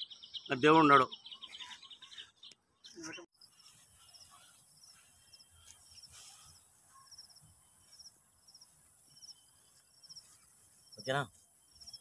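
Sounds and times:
insect chirping: 3.4 - 12.0.

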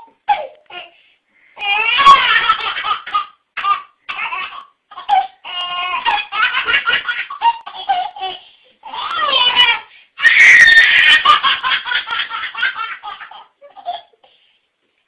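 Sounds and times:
baby laughing and giggling: 1.6 - 9.9, 10.7 - 14.3.

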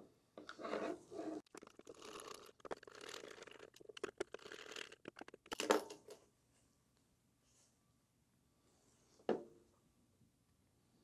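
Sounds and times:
screw creaking into plastic: 1.4 - 5.7.

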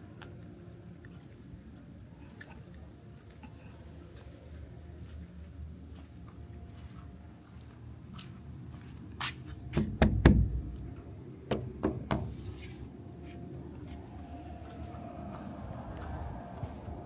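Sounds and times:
steady low rumble: 12.8 - 17.0.

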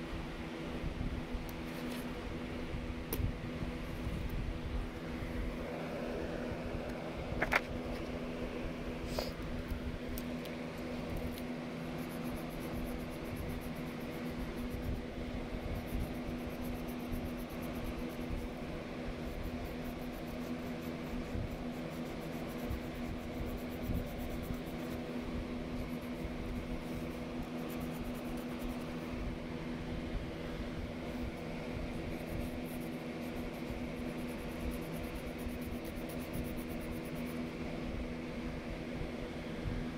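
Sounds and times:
steady mechanical hum: 0.0 - 39.9
pencil scratching on paper: 11.2 - 29.1, 31.2 - 37.4.

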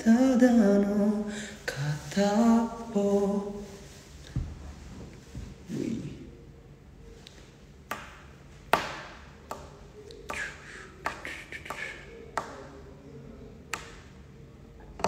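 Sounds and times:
finger snapping: 7.2 - 12.7, 13.7 - 14.1.

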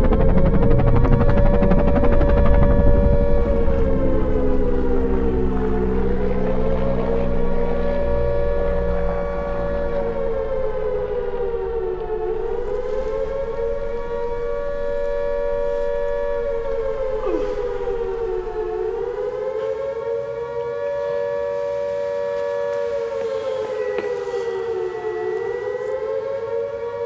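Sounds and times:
siren wailing: 0.0 - 27.0.

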